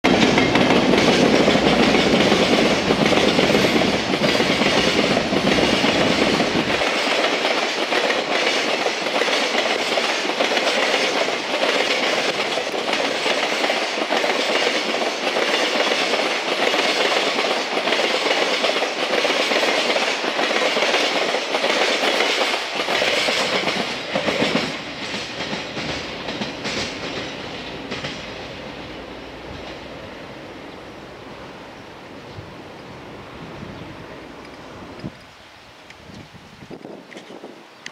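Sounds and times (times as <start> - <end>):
train wheels clacking over rail joints: 0.1 - 30.0.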